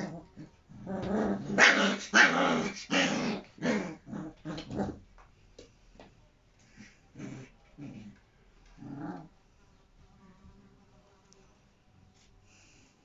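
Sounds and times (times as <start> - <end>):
puppies growling: 0.0 - 5.0, 6.8 - 9.3.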